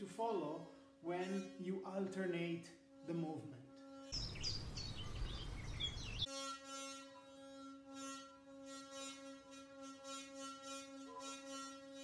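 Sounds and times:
birdsong: 0:04.2 - 0:06.3
skin rasping on metal: 0:06.2 - 0:12.0.

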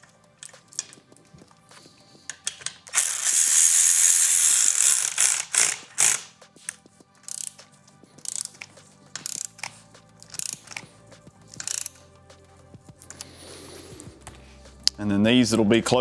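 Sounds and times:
ratchet tightening bolts: 0:02.3 - 0:06.4, 0:07.2 - 0:10.8, 0:11.5 - 0:12.0.

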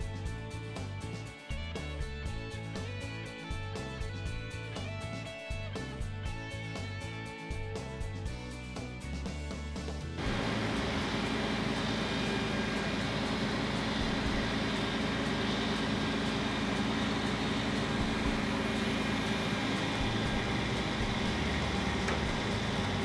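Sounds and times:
truck engine running: 0:10.1 - 0:23.0.

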